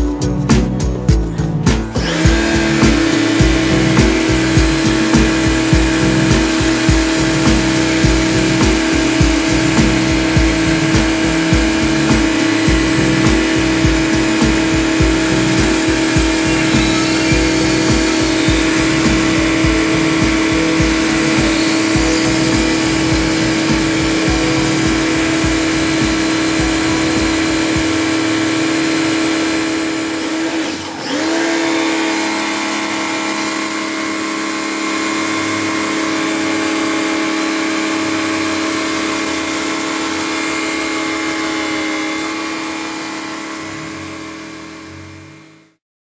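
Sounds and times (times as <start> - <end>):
pressure washer motor whining: 0.0 - 45.8
water jet hissing: 1.8 - 37.4.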